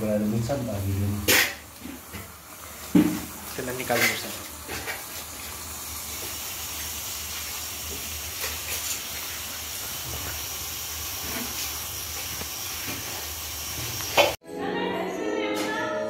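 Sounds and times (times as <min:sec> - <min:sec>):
steam hissing: 0:00.0 - 0:14.4.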